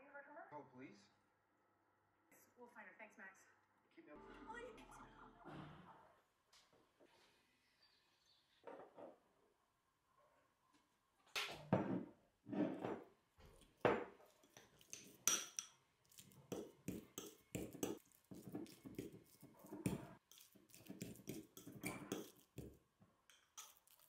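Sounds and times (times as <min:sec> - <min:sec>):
fork scraping ceramic bowl: 0:13.6 - 0:24.0.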